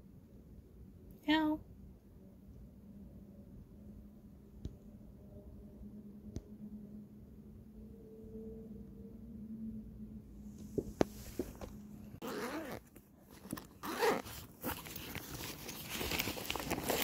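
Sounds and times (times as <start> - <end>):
fabric rustling and scraping: 10.6 - 17.0
zipper pulling open: 11.6 - 17.0.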